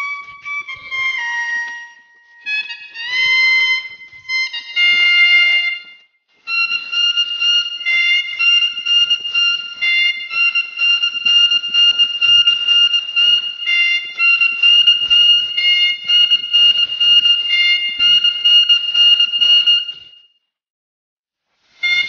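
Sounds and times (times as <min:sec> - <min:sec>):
steady pulsing rhythm: 0:00.0 - 0:20.2.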